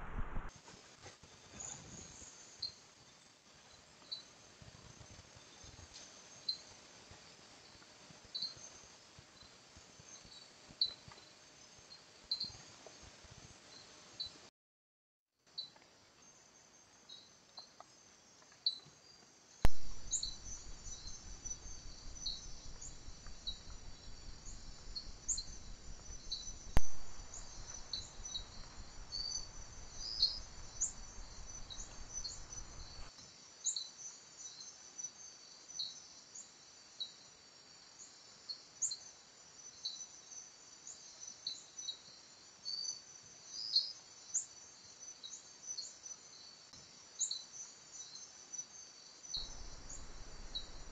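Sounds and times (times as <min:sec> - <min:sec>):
faint low hiss: 0:00.0 - 0:14.5, 0:15.5 - 0:50.9
insect chirps: 0:15.5 - 0:50.9
night insects chorus: 0:16.4 - 0:50.9.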